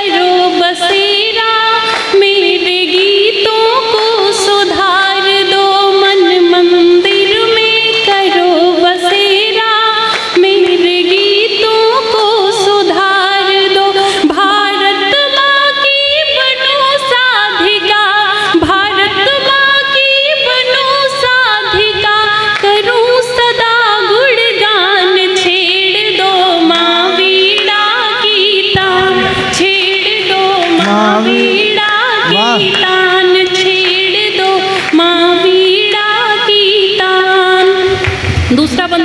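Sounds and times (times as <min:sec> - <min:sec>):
woman singing: 0:00.0 - 0:39.0
held accompaniment notes: 0:28.8 - 0:33.6.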